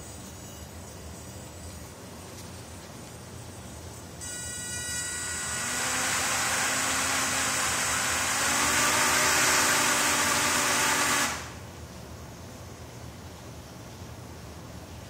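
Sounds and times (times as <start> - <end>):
quadcopter propellers whirring: 4.9 - 11.7.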